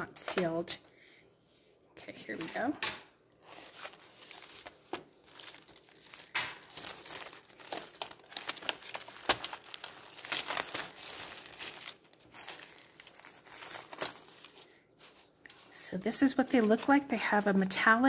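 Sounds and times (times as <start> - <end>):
plastic film snapping: 2.8 - 14.6
plastic wrap crinkling: 3.3 - 17.6.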